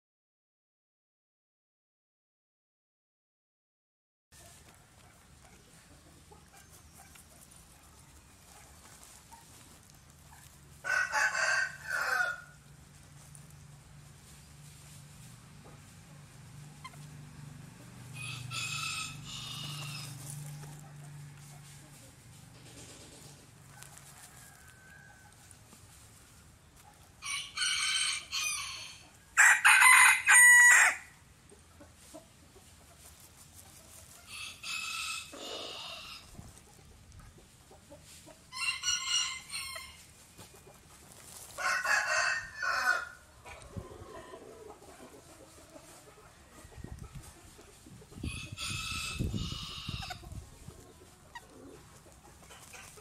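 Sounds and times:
chickens calling: 0:04.4 - 0:53.0.

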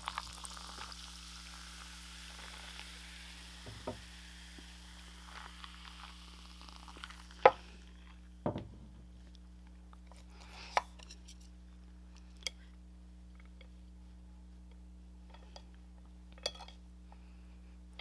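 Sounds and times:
sipping fizzy soda: 0:00.0 - 0:07.9
mug knocking on wooden table: 0:03.7 - 0:04.0, 0:08.4 - 0:09.0.

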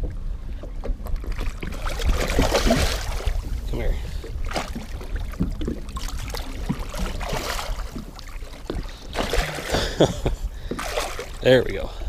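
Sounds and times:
wind rumble on microphone: 0:00.0 - 0:09.2
water splashing against boat: 0:00.0 - 0:12.0.

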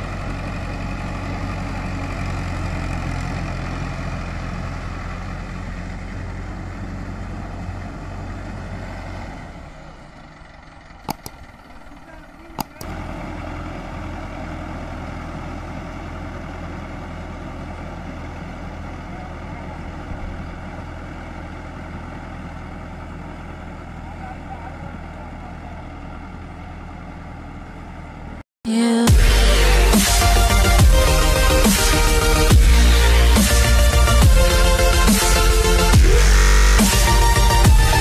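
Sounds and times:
tractor diesel engine running: 0:00.0 - 0:38.0
sharp clicks: 0:11.0 - 0:11.7, 0:12.6 - 0:13.0.

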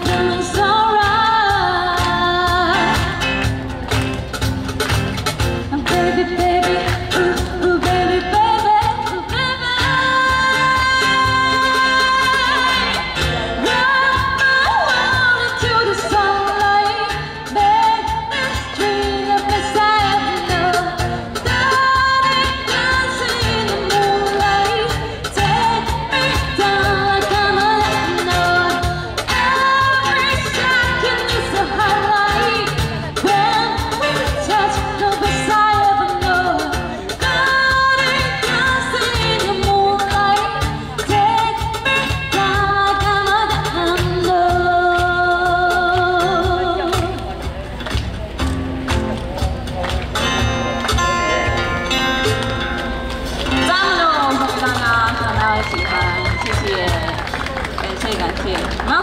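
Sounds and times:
woman singing pop ballad: 0:00.0 - 0:03.5, 0:05.7 - 0:47.3
instrumental accompaniment with beat: 0:00.0 - 0:59.0.

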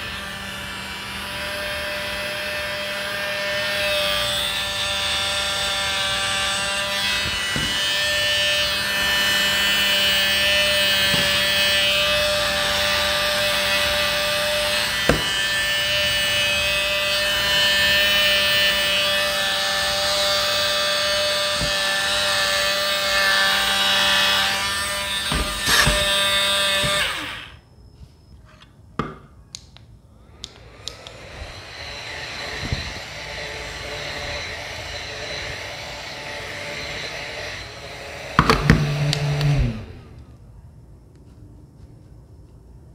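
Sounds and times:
small fan motor whining: 0:00.0 - 0:28.6, 0:30.1 - 0:40.4
second small fan motor: 0:30.2 - 0:40.3.

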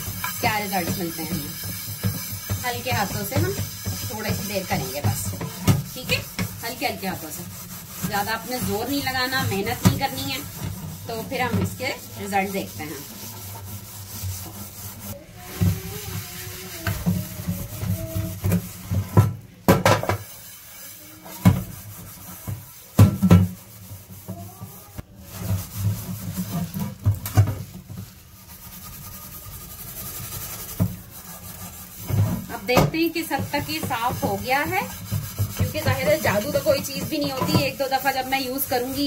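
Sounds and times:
pan knocking: 0:00.0 - 0:13.2, 0:16.8 - 0:20.4, 0:32.0 - 0:39.0
scouring pad scrubbing a pan: 0:00.0 - 0:39.0.

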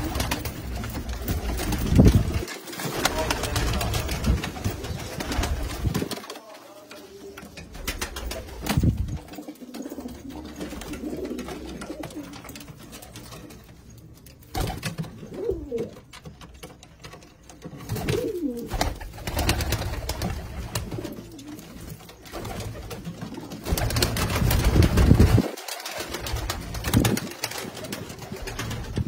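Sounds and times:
pigeons cooing: 0:09.2 - 0:12.6, 0:15.1 - 0:16.0, 0:17.9 - 0:19.0.

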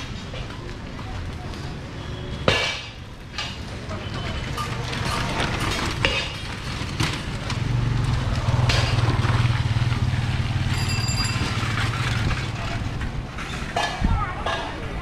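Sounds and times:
cycle rickshaws clicking and rattling: 0:00.0 - 0:15.0
motorcycle engine passing: 0:04.8 - 0:13.2.

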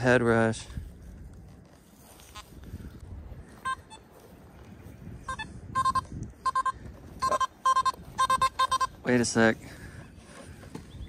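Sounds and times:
metal detector short beeps: 0:03.6 - 0:04.1, 0:05.2 - 0:09.0.

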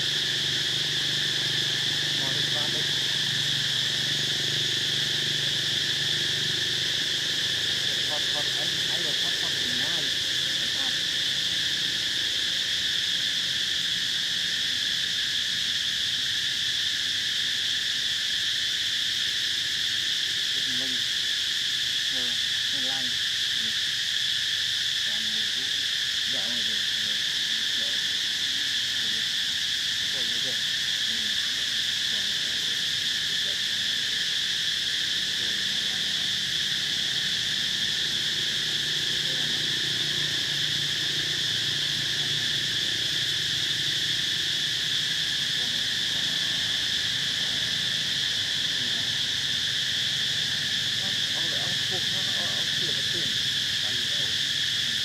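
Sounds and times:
insect chorus drone: 0:00.0 - 0:55.0.

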